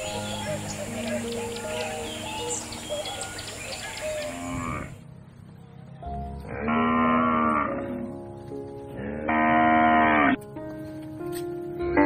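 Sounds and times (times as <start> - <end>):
soft background music: 0.0 - 12.0
cow mooing: 4.3 - 5.0, 6.5 - 8.1, 9.0 - 10.4.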